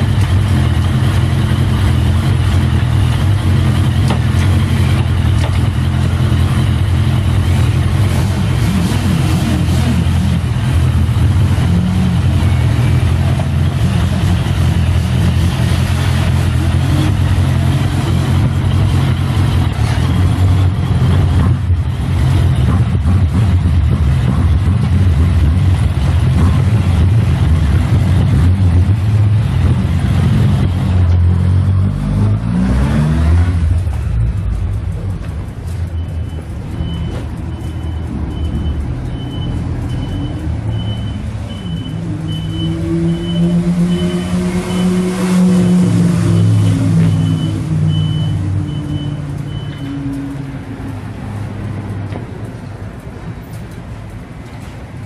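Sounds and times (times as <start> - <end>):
high electronic beeping: 35.8 - 50.0.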